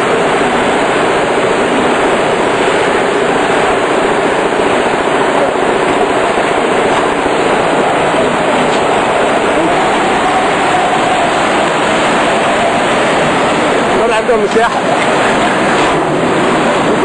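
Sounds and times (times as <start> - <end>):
water churning: 0.0 - 17.0.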